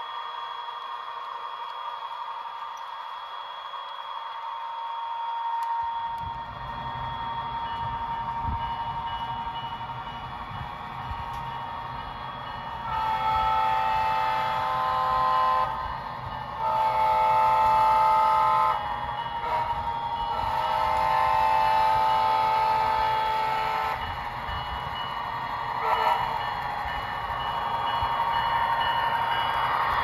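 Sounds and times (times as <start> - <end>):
locomotive horn chord blasts: 12.8 - 15.8, 16.6 - 18.8, 19.4 - 24.0, 25.8 - 26.3.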